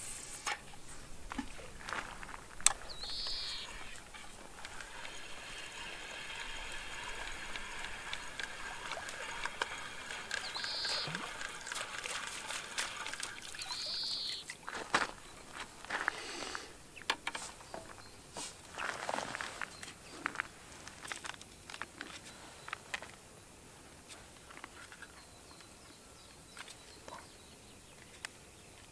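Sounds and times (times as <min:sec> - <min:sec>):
bird calling: 0:02.6 - 0:20.4
fishing reel whirring and ticking: 0:03.0 - 0:14.3.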